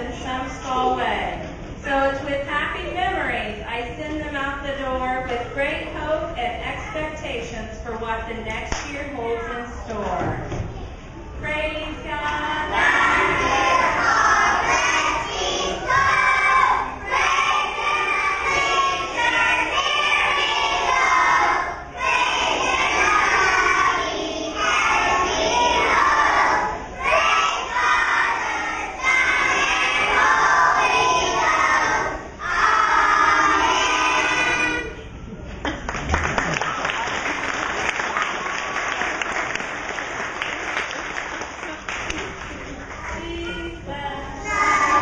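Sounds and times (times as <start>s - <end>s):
children singing together: 12.5s - 35.0s, 44.4s - 45.0s.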